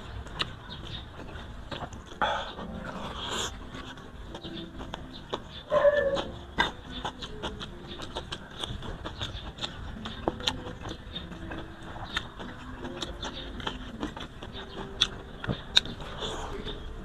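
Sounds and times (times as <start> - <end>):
chewing and lip smacking: 0.0 - 17.0.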